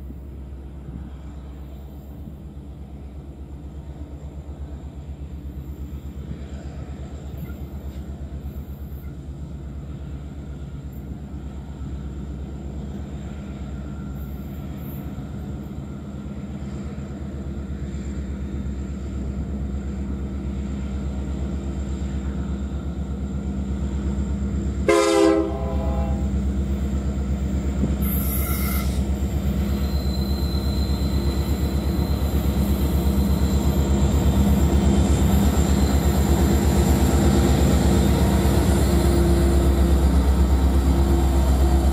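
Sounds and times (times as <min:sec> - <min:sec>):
diesel locomotive engine drone: 0:00.0 - 0:41.9
locomotive horn blast: 0:24.8 - 0:26.4, 0:28.0 - 0:29.0.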